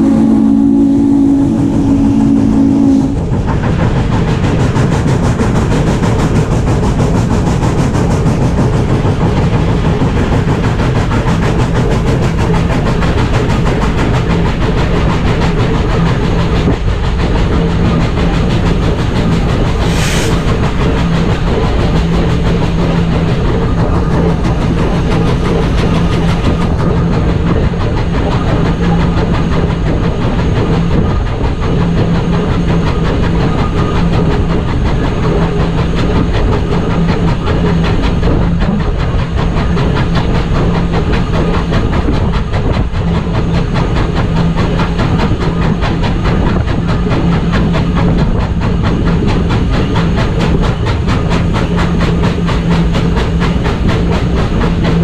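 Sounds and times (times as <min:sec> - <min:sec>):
steam locomotive exhaust beats: 0:00.0 - 0:55.0.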